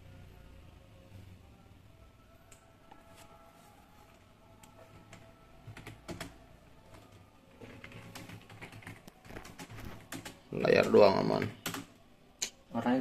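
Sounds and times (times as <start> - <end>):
typing on computer keyboard: 5.0 - 12.0.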